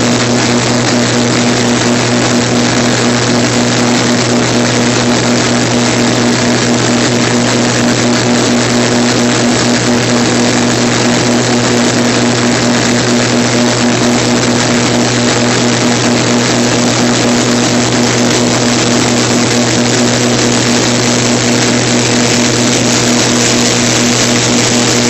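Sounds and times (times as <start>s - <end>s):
auger running under load: 0.0s - 25.0s
higher-pitched hum: 0.0s - 25.0s.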